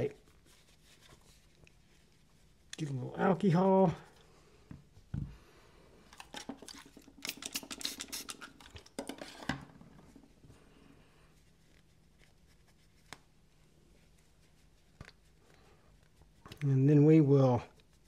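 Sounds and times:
scratchy clicking and rubbing: 0:06.2 - 0:09.5.

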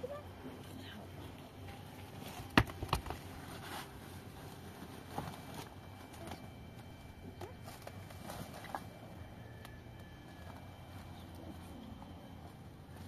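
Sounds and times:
canvas tarp rustling: 0:03.2 - 0:06.3.

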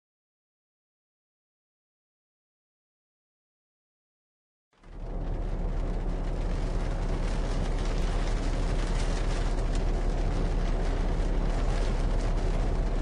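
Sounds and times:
bus engine rumble from inside: 0:04.8 - 0:13.0
faint rattles and ticks: 0:04.8 - 0:13.0.

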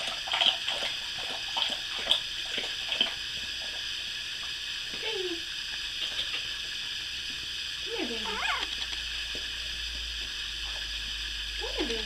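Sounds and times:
puppy whimpering: 0:08.2 - 0:08.7.

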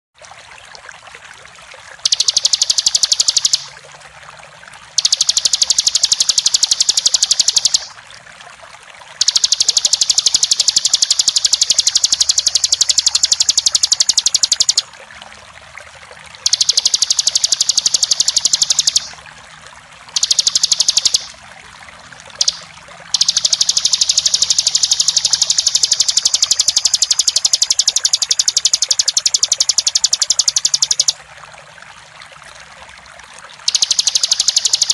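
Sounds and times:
flowing water rushing: 0:00.2 - 0:34.9
bird singing rapid trill: 0:02.1 - 0:03.7, 0:05.0 - 0:08.0, 0:09.2 - 0:14.9, 0:16.5 - 0:19.2, 0:20.2 - 0:21.4, 0:22.4 - 0:31.2, 0:33.7 - 0:34.9.

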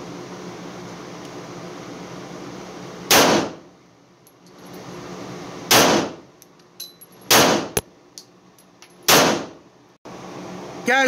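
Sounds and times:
pistol shots echoing: 0:03.1 - 0:03.6, 0:05.7 - 0:06.2, 0:07.3 - 0:07.8, 0:09.1 - 0:09.5.

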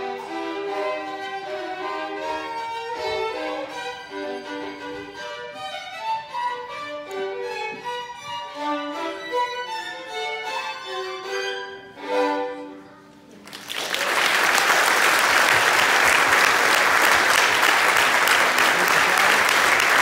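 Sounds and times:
violin duet: 0:00.0 - 0:13.3
audience applause: 0:13.4 - 0:20.0.

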